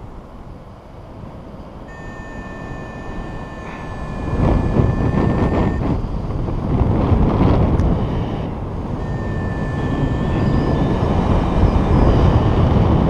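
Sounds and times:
wind buffeting microphone: 0.0 - 13.0
steady high tone: 1.9 - 6.2, 7.8 - 13.0.

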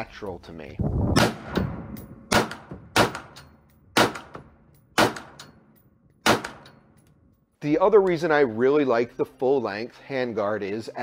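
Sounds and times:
rifle shots with echo: 1.2 - 3.4, 4.0 - 5.4, 6.2 - 6.8.

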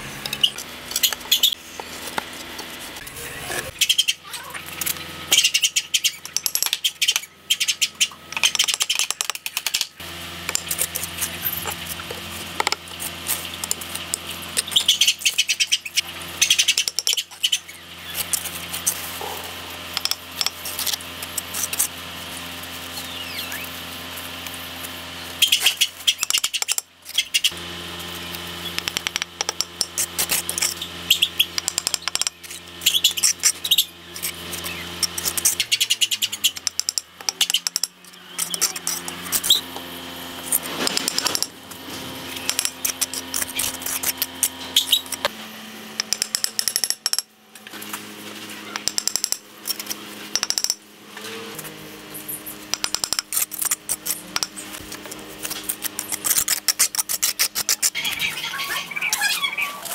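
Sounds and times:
trowel scraping mortar on bricks: 36.6 - 39.6, 40.4 - 45.3, 52.8 - 58.0.

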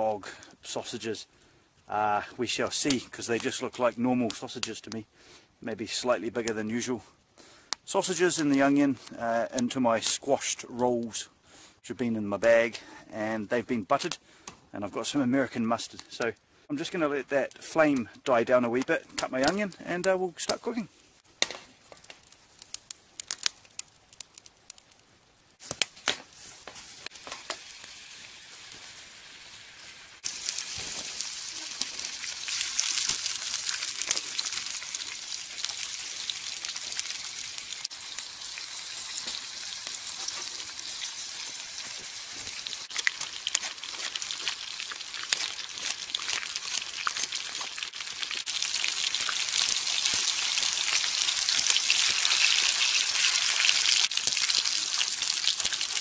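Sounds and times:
food sizzling in a frying pan: 26.4 - 56.0.

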